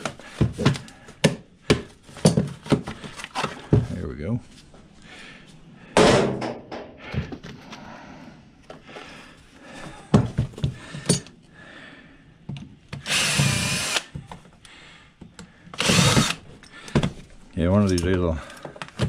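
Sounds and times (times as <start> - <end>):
tools and metal parts clattering: 2.1 - 3.8, 11.0 - 11.3
cordless drill running: 13.0 - 14.1, 15.8 - 16.4.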